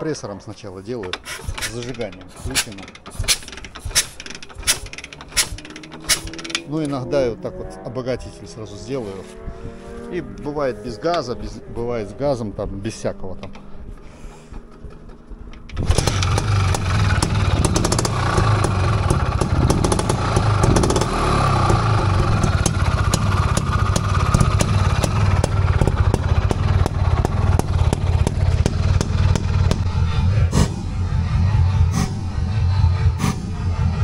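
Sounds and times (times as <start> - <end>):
motorcycle engine kick-started: 1.1 - 6.8, 13.6 - 30.2.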